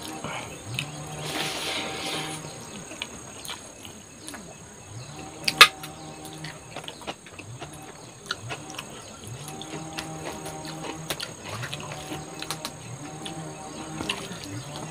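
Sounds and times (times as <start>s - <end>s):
high insect drone: 0.0s - 14.9s
chewing with wet mouth clicks: 2.4s - 4.6s, 5.4s - 14.9s.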